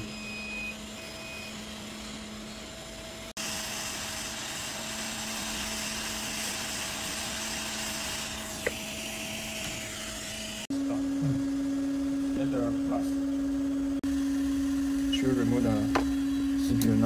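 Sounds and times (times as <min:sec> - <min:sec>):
hot air gun hissing: 0:03.3 - 0:10.7.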